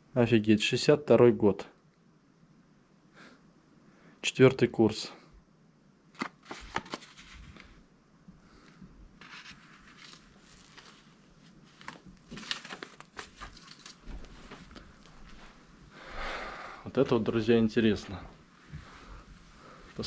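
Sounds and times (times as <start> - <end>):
paper rustling and crinkling: 6.1 - 7.8, 9.2 - 15.4.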